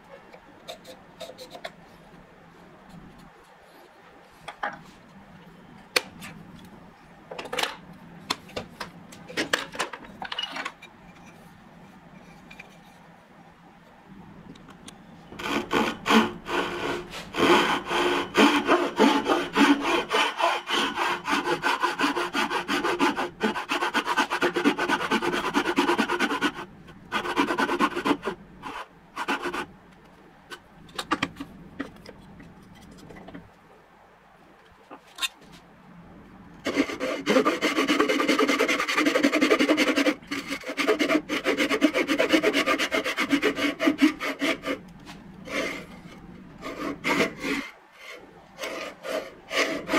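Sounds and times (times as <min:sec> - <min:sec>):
hand saw cutting wood: 0:15.4 - 0:29.7, 0:36.6 - 0:44.8, 0:45.4 - 0:49.9.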